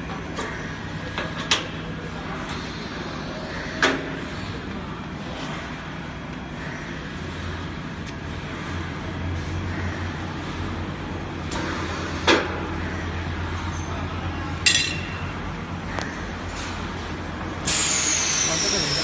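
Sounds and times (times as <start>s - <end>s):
loud hiss of air: 17.6s - 19.0s.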